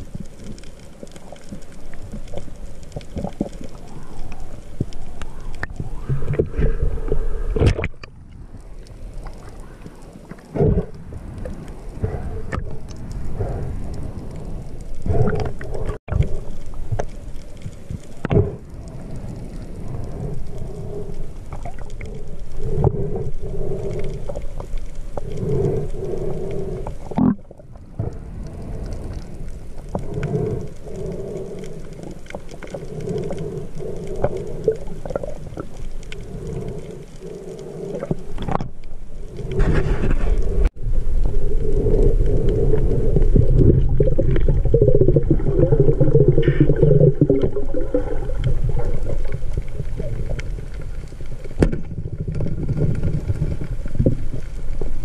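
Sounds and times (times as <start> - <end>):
underwater rumble of moving water: 0.0 - 55.0
hollow underwater tones: 37.9 - 55.0.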